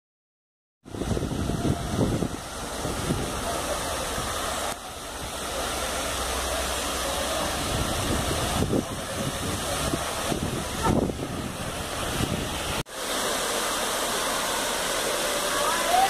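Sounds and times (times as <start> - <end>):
wind buffeting microphone: 0.8 - 4.4, 7.4 - 12.8
water spilling down fountain: 0.9 - 16.0.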